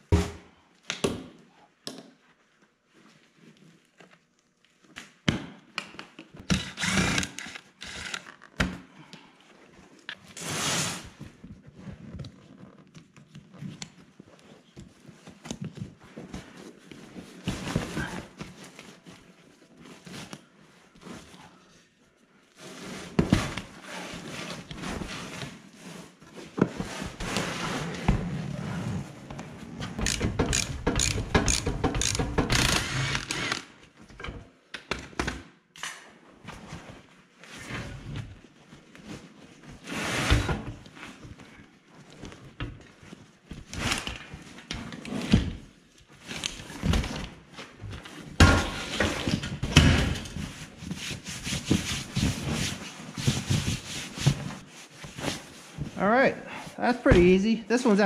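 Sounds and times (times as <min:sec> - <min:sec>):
fabric and foam rustling: 0:01.5 - 0:05.0, 0:09.0 - 0:30.0, 0:36.2 - 0:49.6, 0:50.2 - 0:58.0.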